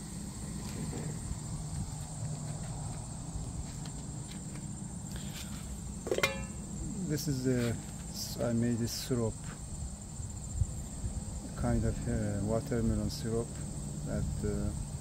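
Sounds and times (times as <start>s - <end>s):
crickets chirping: 0.0s - 15.0s
metal pot lid clink: 6.1s - 6.6s.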